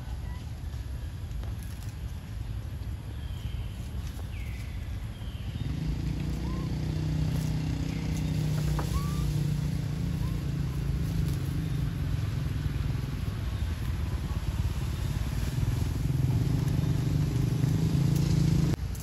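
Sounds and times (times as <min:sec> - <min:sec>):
motor engine humming: 0:04.9 - 0:18.8.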